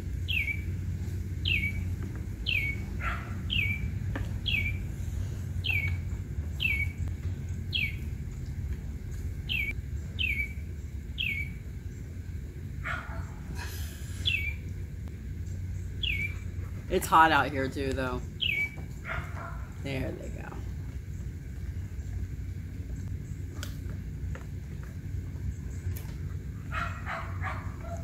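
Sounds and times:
low background rumble: 0:00.0 - 0:28.0
bird calling: 0:00.2 - 0:00.8, 0:01.4 - 0:08.1, 0:09.4 - 0:11.7, 0:12.9 - 0:14.8, 0:15.8 - 0:16.7, 0:18.2 - 0:20.2.

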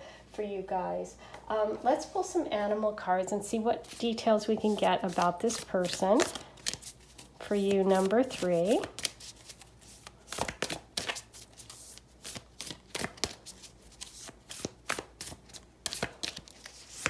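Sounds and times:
cards being shuffled: 0:03.8 - 0:17.0.

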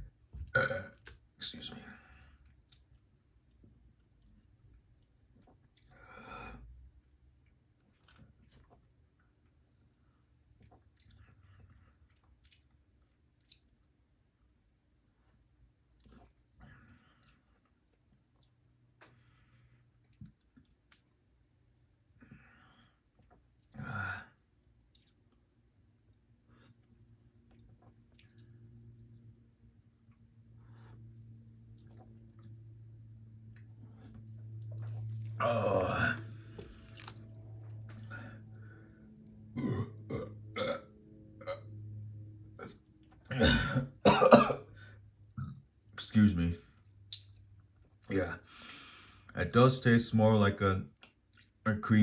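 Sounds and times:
low steady hum: 0:00.0 - 0:52.0
man burping loudly: 0:00.6 - 0:01.0, 0:35.4 - 0:36.3, 0:39.6 - 0:41.7, 0:42.6 - 0:44.6
person sighing: 0:23.8 - 0:24.3, 0:35.4 - 0:36.8
person breathing: 0:38.0 - 0:39.1, 0:48.5 - 0:49.3.

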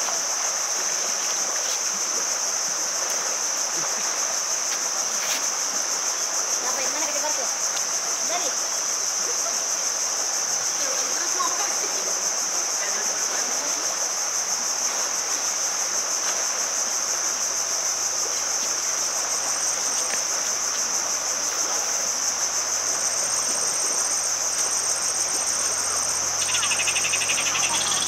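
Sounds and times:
high-pitched insect chorus: 0:00.0 - 0:28.0
fast pulsing chirp: 0:25.9 - 0:28.0.

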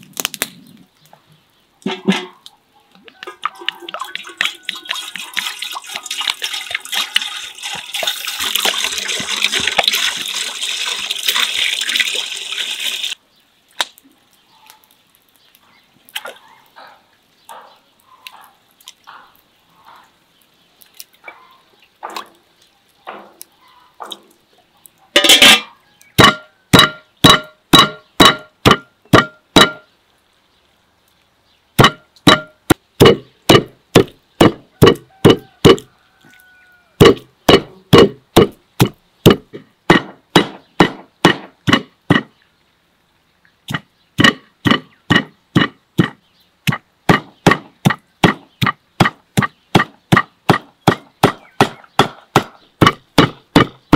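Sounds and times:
water pouring into metal pot: 0:03.2 - 0:13.2
cleaver chopping meat on wood: 0:26.2 - 0:29.8, 0:31.8 - 0:35.9, 0:37.0 - 0:42.3, 0:43.7 - 0:53.9.

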